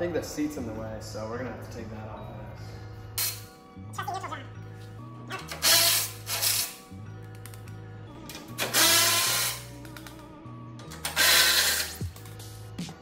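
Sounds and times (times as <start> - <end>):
background music with bass line: 0.0 - 13.0
power tool bursts: 5.5 - 6.8, 8.6 - 9.7, 11.0 - 12.0.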